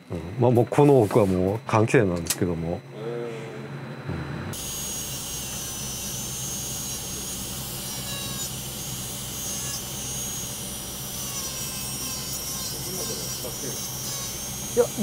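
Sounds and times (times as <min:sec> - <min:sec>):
rotary grinder running: 0:04.5 - 0:15.0.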